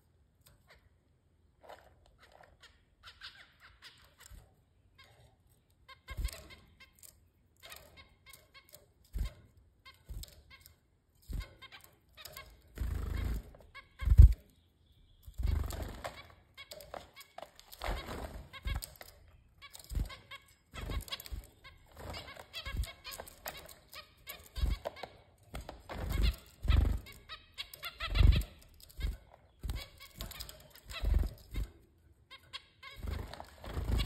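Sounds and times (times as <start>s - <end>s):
wing flutters: 11.3s - 14.4s, 15.4s - 25.0s, 33.0s - 34.0s
birds pecking and rustling leaves: 15.3s - 31.8s, 32.8s - 34.0s.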